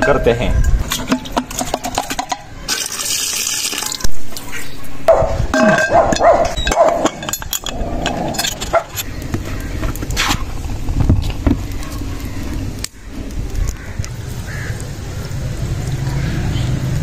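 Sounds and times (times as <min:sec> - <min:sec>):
water pouring into a pot: 0:02.7 - 0:04.1
sharp metal clank: 0:05.6 - 0:09.1.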